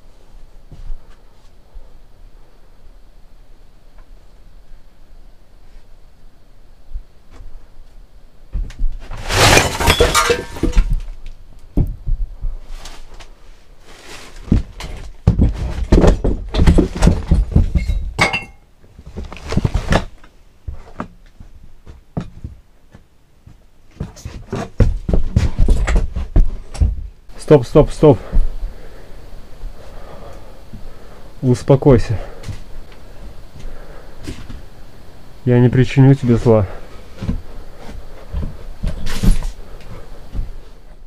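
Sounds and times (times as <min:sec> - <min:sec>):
steady low hum: 0:00.0 - 0:41.0
crashing and clattering: 0:09.0 - 0:11.2
faint hiss: 0:27.2 - 0:41.0.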